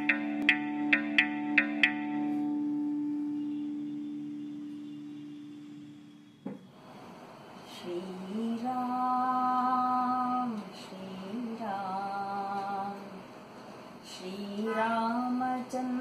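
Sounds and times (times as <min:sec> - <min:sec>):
woman humming long held notes: 0:00.0 - 0:06.4.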